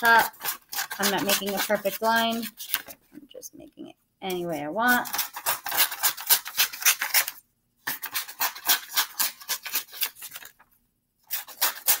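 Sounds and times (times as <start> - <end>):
scissors snipping paper: 0.0 - 3.0, 4.9 - 10.6, 11.3 - 12.0
paper rustle: 0.4 - 3.1, 9.4 - 12.0.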